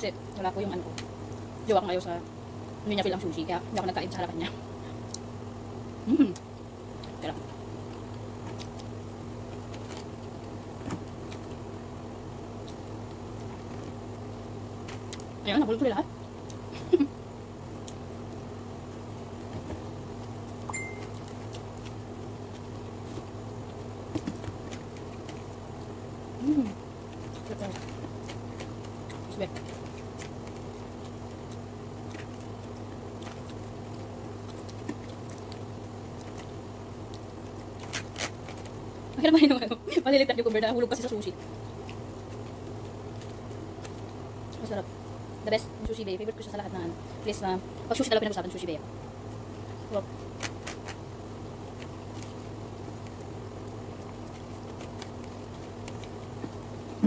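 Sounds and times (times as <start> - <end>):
steady low hum: 0.0 - 57.0
person chewing food: 7.8 - 11.7, 17.7 - 18.4, 19.3 - 39.2, 41.4 - 45.4, 49.4 - 57.0.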